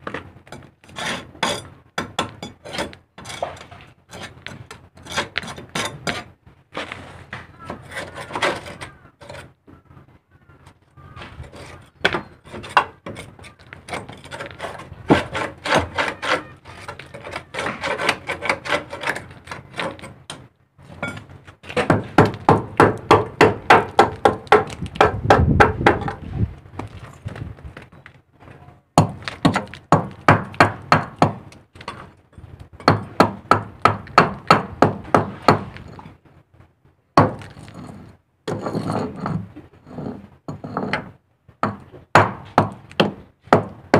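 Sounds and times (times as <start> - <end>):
hand tool scraping metal fitting: 0.5 - 6.3, 7.6 - 9.6, 11.2 - 21.3, 37.4 - 41.1.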